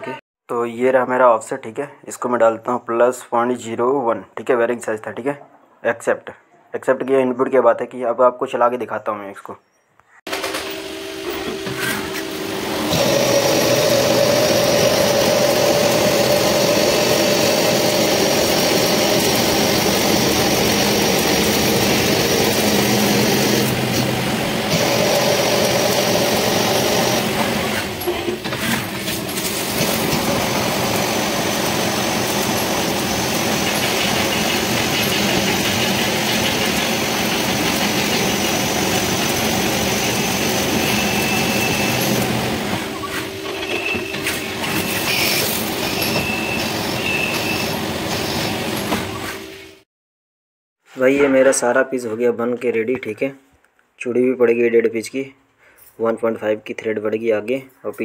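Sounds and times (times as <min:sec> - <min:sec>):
lathe cutting metal: 0:10.3 - 0:49.1
coolant pouring: 0:12.6 - 0:28.0, 0:28.8 - 0:42.2
steady machine tones: 0:29.7 - 0:48.8.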